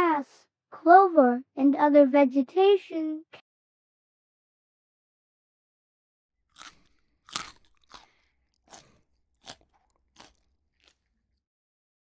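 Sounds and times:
rabbits crunching lettuce: 6.6 - 11.2.

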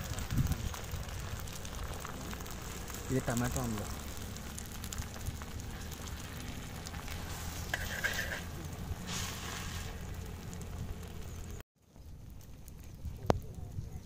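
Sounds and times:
omelette sizzling in oil: 0.0 - 11.6
metal spatula scraping pan: 7.6 - 8.5.

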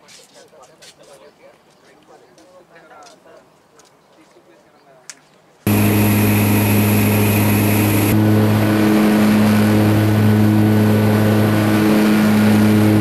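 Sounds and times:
propeller aircraft engines droning: 5.7 - 13.0
rush of air noise: 5.7 - 13.0.

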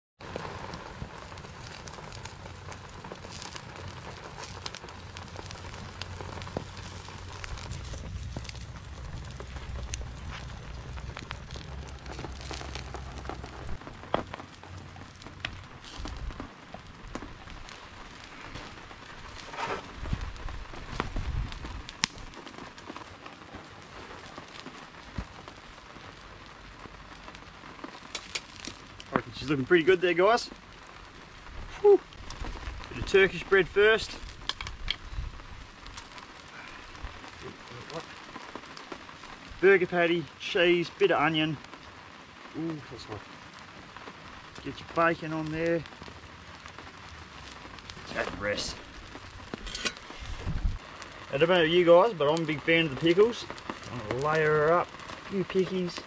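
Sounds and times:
campfire crackling: 0.2 - 56.0
steady rain falling: 0.2 - 56.0
footsteps on dirt: 6.4 - 16.5.

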